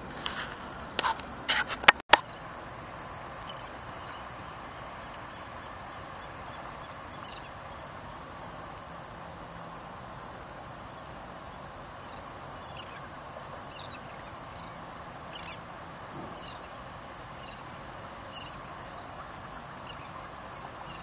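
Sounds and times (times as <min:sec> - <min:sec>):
water: 0:00.0 - 0:21.0
wind: 0:00.0 - 0:21.0
high bird chirps: 0:16.2 - 0:21.0.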